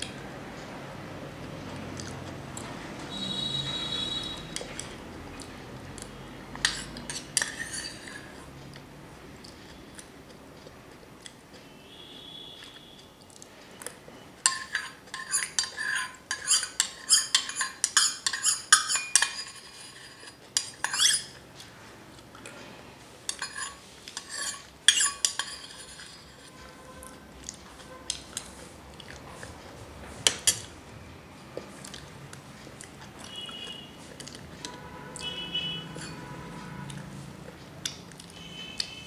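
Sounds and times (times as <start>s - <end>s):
spoon scraping bowl: 6.6s - 8.6s, 14.4s - 21.4s, 23.3s - 28.6s, 33.2s - 37.1s
spoon clinking on steel bowl: 14.4s - 21.4s, 23.3s - 26.4s, 35.2s - 36.3s.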